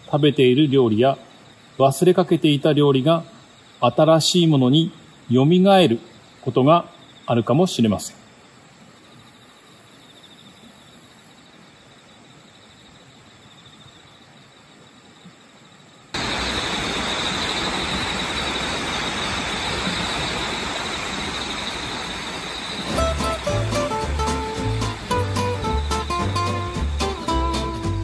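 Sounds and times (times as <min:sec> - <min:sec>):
hiss of outdoor noise: 0:00.0 - 0:28.0
insects trilling: 0:00.0 - 0:28.0.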